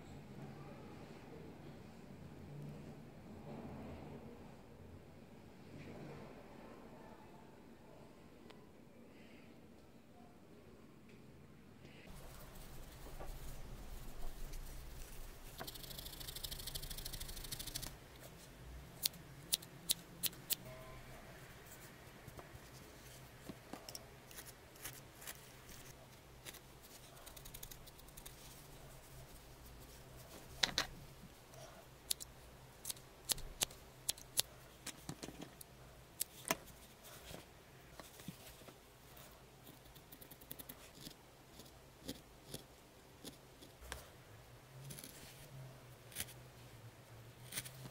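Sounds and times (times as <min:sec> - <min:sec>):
felting needle jabbing wool: 0:12.1 - 0:18.4, 0:19.0 - 0:20.7, 0:23.8 - 0:31.0, 0:32.0 - 0:37.4, 0:39.2 - 0:44.1, 0:47.4 - 0:47.9
wool fibres rustling: 0:12.1 - 0:18.6, 0:21.4 - 0:39.4.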